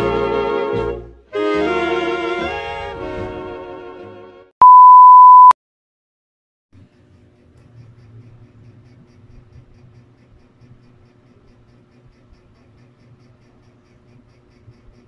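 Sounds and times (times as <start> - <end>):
music: 0.0 - 4.5
test tone beep: 4.6 - 5.6.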